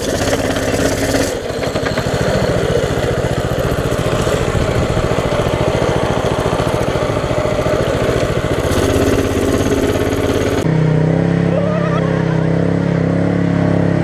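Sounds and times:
minibike engine running: 0:00.0 - 0:10.7
smooth engine hum: 0:00.0 - 0:14.0.

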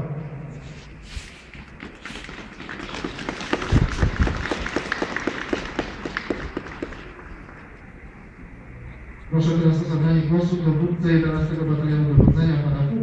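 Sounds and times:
crowd applause: 0:01.6 - 0:07.7.

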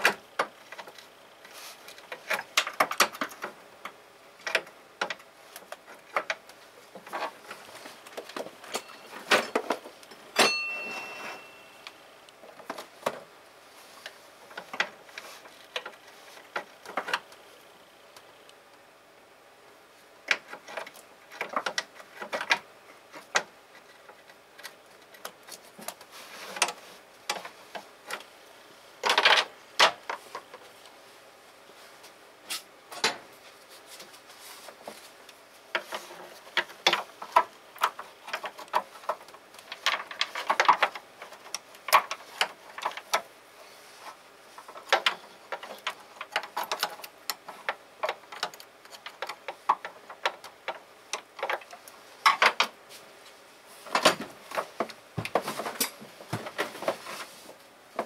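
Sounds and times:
hand tools clinking on metal: 0:08.7 - 0:09.6, 0:10.3 - 0:12.0.

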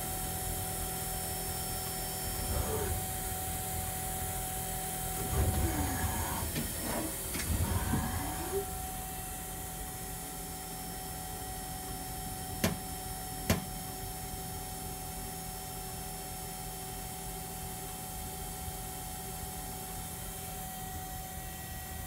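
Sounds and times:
lathe machine hum: 0:02.0 - 0:03.8, 0:04.9 - 0:09.3
motor whines: 0:02.1 - 0:03.6, 0:05.0 - 0:09.0.

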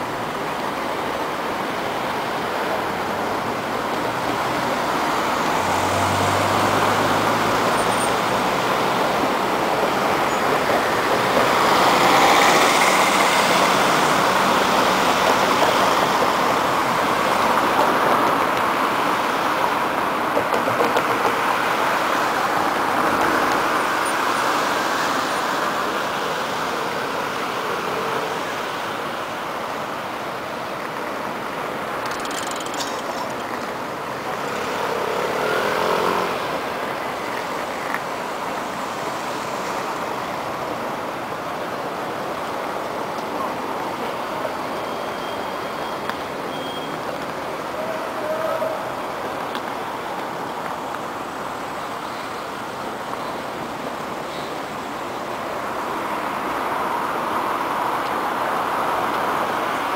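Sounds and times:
cars passing: 0:00.0 - 0:59.9
short high squeak: 0:44.8 - 0:47.0.

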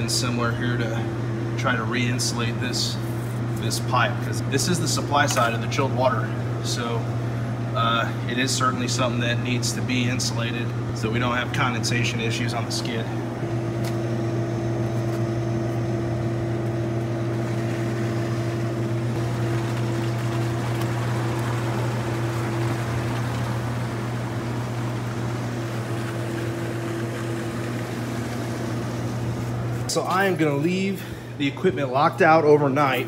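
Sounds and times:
low machinery hum: 0:00.0 - 0:33.0
water rushing into pipes: 0:17.3 - 0:29.5.

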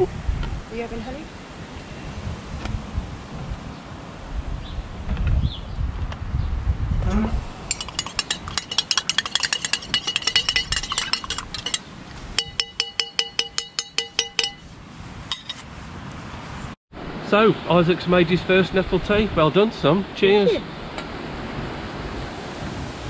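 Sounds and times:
spoon clinking in a teacup: 0:07.7 - 0:11.8, 0:12.4 - 0:14.6.

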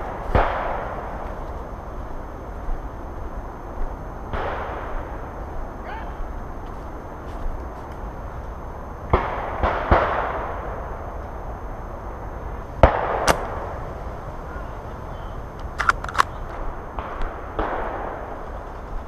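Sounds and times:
airsoft guns firing: 0:09.1 - 0:10.7, 0:12.8 - 0:13.7, 0:15.8 - 0:18.4
small clicks: 0:15.6 - 0:16.4.

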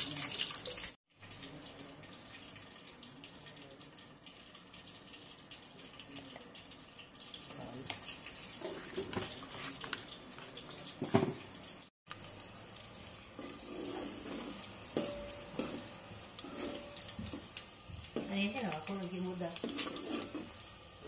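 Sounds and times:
ladle stirring vegetables in pot: 0:12.2 - 0:21.0
metal spoon scraping paste in bowl: 0:13.4 - 0:17.1, 0:19.6 - 0:20.5.

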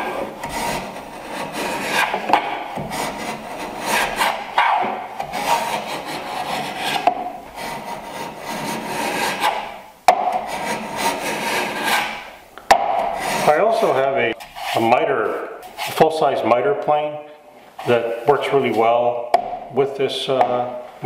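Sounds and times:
block plane scraping wood: 0:00.0 - 0:15.0.

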